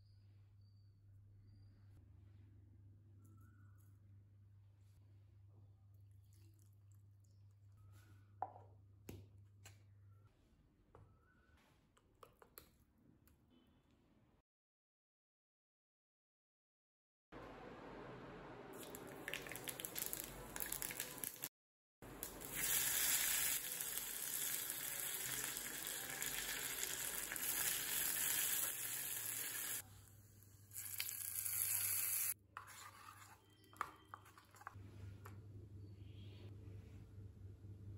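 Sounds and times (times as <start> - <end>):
spices sizzling and popping in oil: 18.8 - 21.5, 22.1 - 29.8, 30.7 - 32.4.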